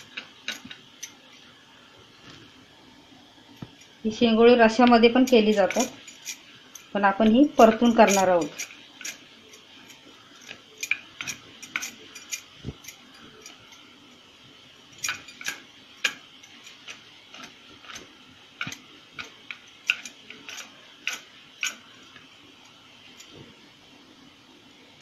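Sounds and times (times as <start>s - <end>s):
glass bangles clinking: 5.2s - 6.9s, 10.4s - 13.9s, 14.9s - 18.0s.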